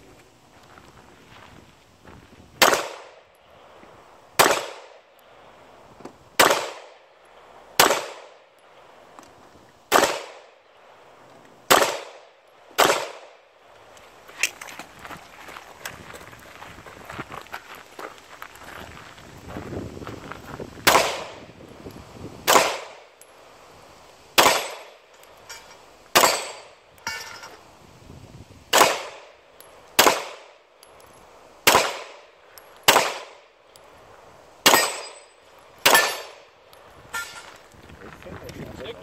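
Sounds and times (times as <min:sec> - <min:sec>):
pistol shots echoing: 0:02.6 - 0:03.2, 0:04.4 - 0:05.0, 0:06.4 - 0:07.0, 0:07.8 - 0:08.4, 0:09.9 - 0:10.5, 0:11.7 - 0:13.3, 0:20.9 - 0:21.4, 0:22.5 - 0:23.1, 0:24.4 - 0:25.0, 0:26.2 - 0:26.7, 0:28.7 - 0:29.3, 0:30.0 - 0:30.6, 0:31.6 - 0:32.3, 0:32.9 - 0:33.4, 0:34.6 - 0:35.2, 0:35.8 - 0:36.5.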